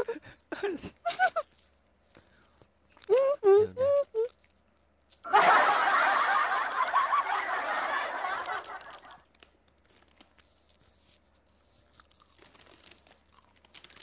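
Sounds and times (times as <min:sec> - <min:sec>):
person giggling: 0:00.0 - 0:01.5, 0:05.3 - 0:09.2
crunching snack being eaten: 0:06.1 - 0:14.0.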